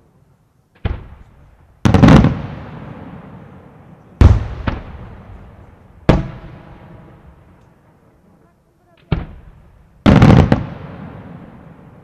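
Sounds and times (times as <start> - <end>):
firework shells bursting with echo: 0.8 - 7.8.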